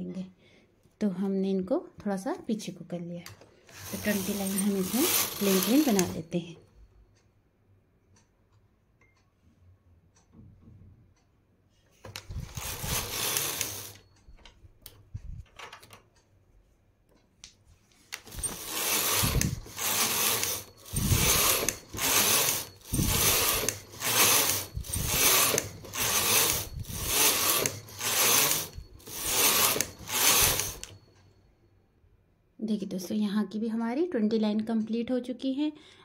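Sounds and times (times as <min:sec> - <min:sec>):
knitting machine carriage sliding: 0:03.7 - 0:06.3, 0:12.0 - 0:14.1, 0:18.0 - 0:31.0.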